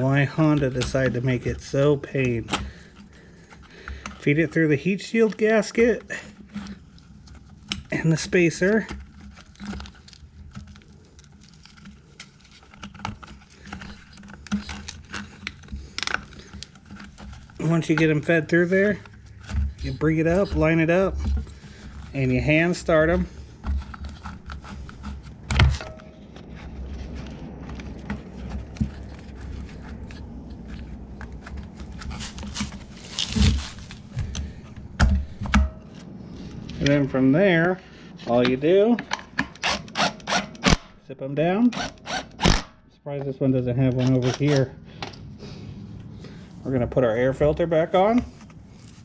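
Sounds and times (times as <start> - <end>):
steady low hum: 0.0 - 49.0
plastic parts clicking and knocking: 5.2 - 22.2, 27.6 - 35.9.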